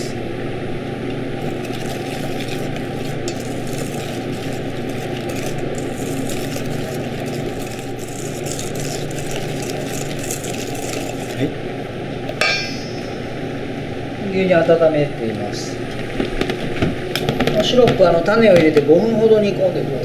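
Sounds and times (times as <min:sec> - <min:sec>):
steady low hum: 0:00.0 - 0:20.0
whisk scraping metal bowl: 0:01.4 - 0:11.6.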